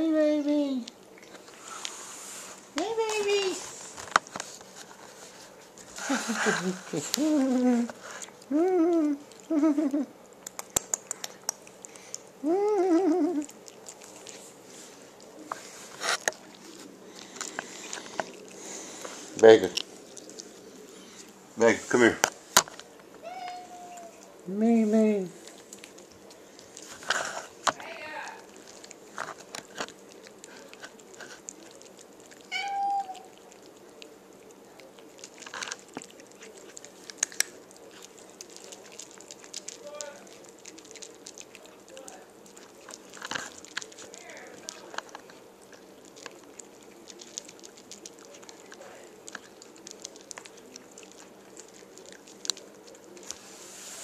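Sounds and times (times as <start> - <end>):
dry kibble crunching: 0.2 - 54.0
light clicks of play-biting: 2.6 - 21.4, 25.4 - 54.0
puppy whining: 6.0 - 10.2, 11.9 - 14.4, 20.0 - 21.4, 23.2 - 24.4, 31.7 - 33.7
cat meowing: 23.2 - 24.3, 32.5 - 33.3.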